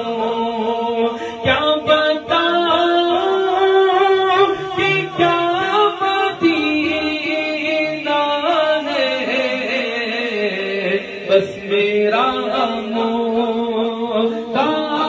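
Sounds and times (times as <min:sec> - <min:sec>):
man singing into a microphone: 0:00.0 - 0:15.0.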